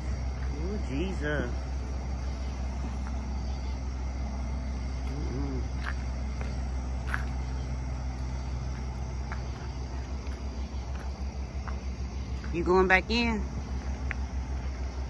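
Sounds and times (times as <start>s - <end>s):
house fire rumble and hiss: 0.0s - 15.0s.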